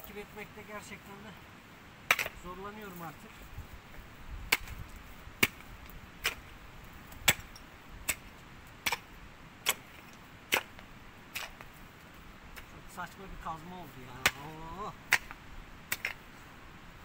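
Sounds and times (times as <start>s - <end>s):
pickaxe striking ground: 2.1s - 2.4s, 4.5s - 6.5s, 7.2s - 11.7s, 14.2s - 16.2s.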